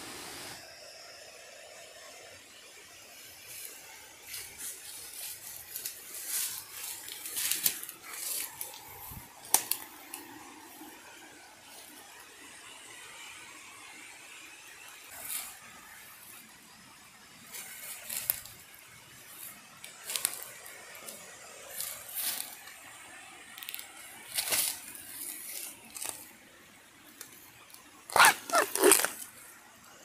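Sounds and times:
footsteps crunching dry leaves: 3.4s - 10.4s, 17.5s - 22.8s, 23.6s - 26.4s, 28.1s - 29.3s
bamboo shoot snapping: 9.4s - 10.2s.

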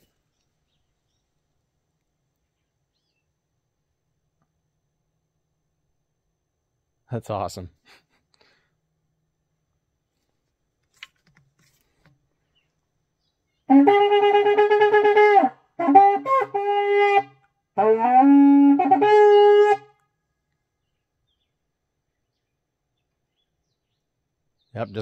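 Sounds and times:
shofar blasts: 13.7s - 20.0s.

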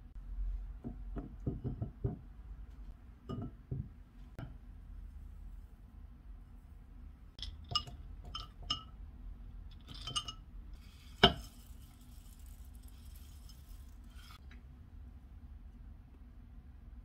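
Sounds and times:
glass jars clinking on bowl: 7.4s - 8.9s, 9.8s - 10.4s
oats pouring rustle: 10.8s - 14.4s.

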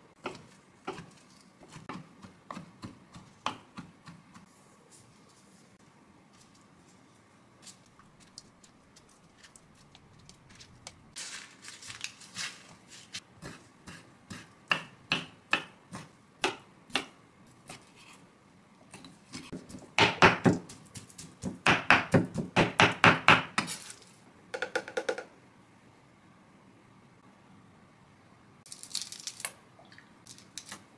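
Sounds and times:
knife chopping on wooden board: 19.5s - 23.7s.

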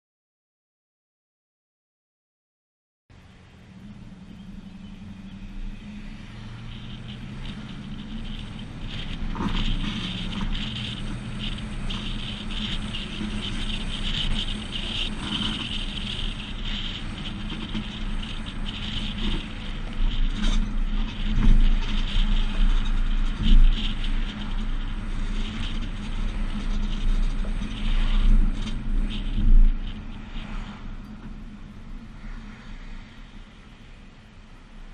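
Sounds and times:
road and wind noise: 3.1s - 34.9s
trailer and hitch rattling: 3.8s - 30.4s.

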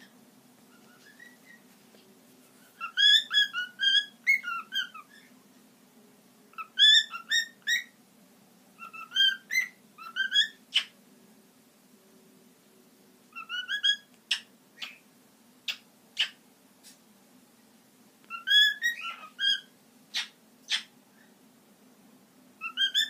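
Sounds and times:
cockatiel sharp chirp: 0.7s - 1.6s, 2.6s - 5.3s, 6.6s - 8.0s, 8.8s - 11.0s, 13.3s - 15.0s, 15.7s - 17.0s, 18.3s - 21.3s, 22.6s - 23.0s
cockatiel whistling: 0.7s - 1.6s, 2.7s - 5.3s, 6.6s - 8.0s, 8.8s - 10.9s, 13.3s - 15.0s, 15.7s - 16.4s, 18.3s - 21.3s, 22.6s - 23.0s.

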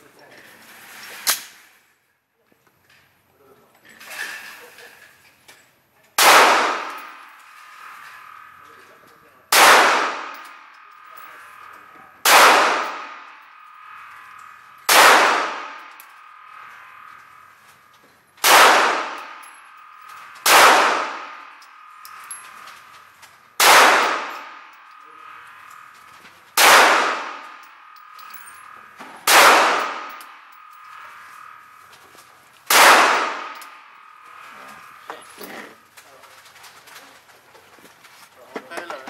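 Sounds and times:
pistol shots echoing indoors: 6.2s - 7.3s, 9.5s - 10.6s, 12.2s - 13.3s, 14.9s - 16.6s, 18.4s - 22.0s, 23.6s - 24.6s, 26.6s - 28.2s, 29.2s - 30.7s, 32.7s - 34.1s.

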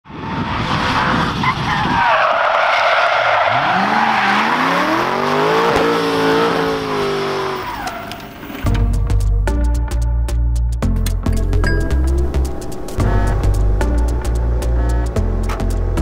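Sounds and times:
car engine revving: 3.2s - 8.6s, 11.5s - 16.0s.

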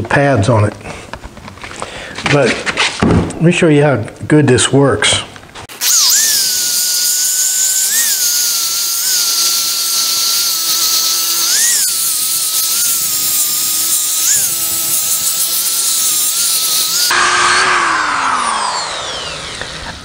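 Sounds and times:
electric drill motor whine: 5.7s - 20.0s
sanding disc hissing on wood: 5.8s - 17.1s.

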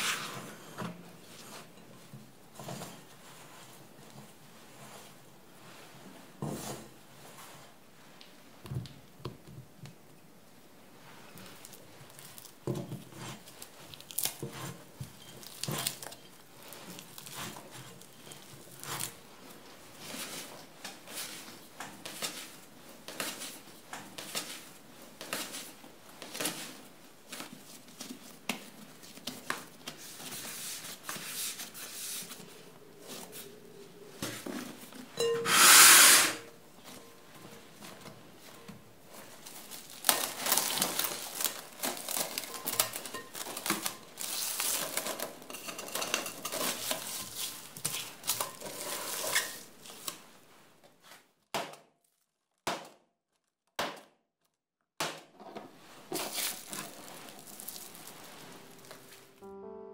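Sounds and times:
dough slapping and squishing: 11.2s - 33.3s, 55.0s - 58.4s.

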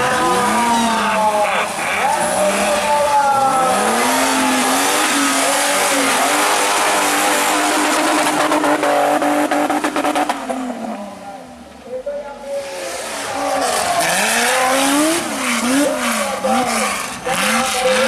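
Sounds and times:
engine revving hard: 3.5s - 10.4s, 12.9s - 18.0s.

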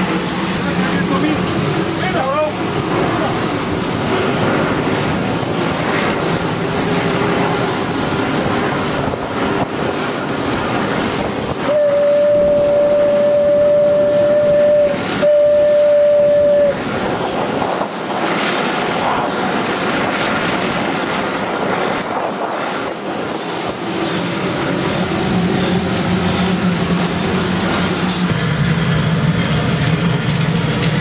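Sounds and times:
steam locomotive running and exhaust beats: 0.0s - 31.0s
steam whistle blasts: 11.6s - 16.9s.

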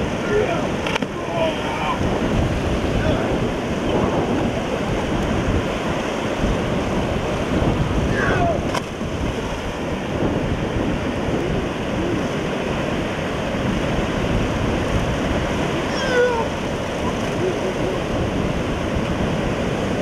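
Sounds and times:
breaking surf: 0.0s - 20.0s
water splashing: 0.0s - 20.0s
wind buffeting microphone: 0.0s - 20.0s
short high cries: 15.9s - 16.5s.

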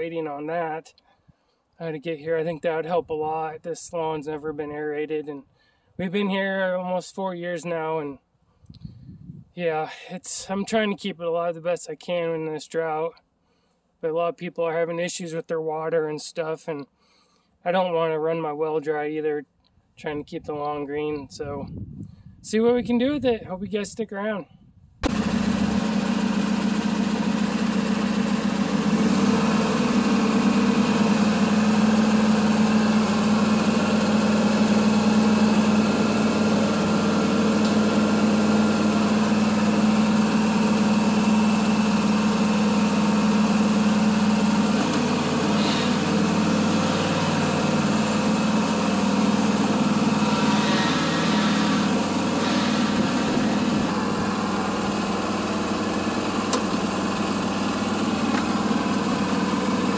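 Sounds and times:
lawn mower engine running: 25.0s - 59.9s.

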